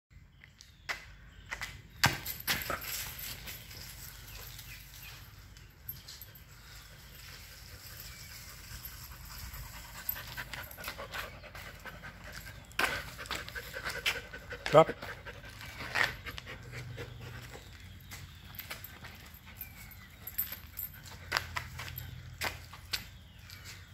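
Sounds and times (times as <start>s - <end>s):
dog panting: 9.0s - 17.9s.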